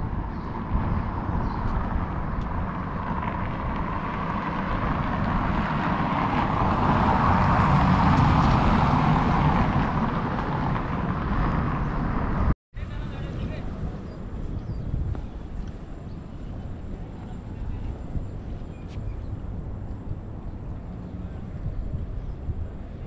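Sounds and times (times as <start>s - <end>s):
vehicle passing: 0.0s - 12.6s
road traffic: 0.0s - 23.0s
wind buffeting microphone: 0.0s - 23.0s.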